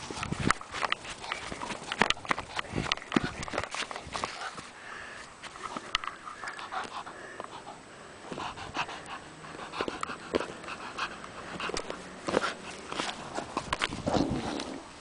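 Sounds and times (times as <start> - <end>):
teeth and paws scratching ball: 0.0 - 4.7, 5.5 - 14.8
dog panting: 5.7 - 13.7.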